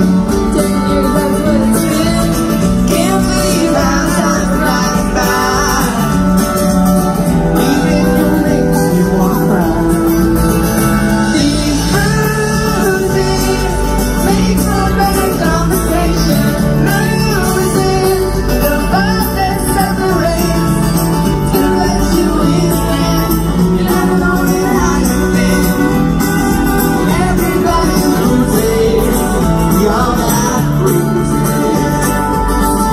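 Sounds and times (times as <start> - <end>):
acoustic guitar: 0.0 - 32.9
drums: 0.0 - 32.9
person singing: 0.0 - 32.9.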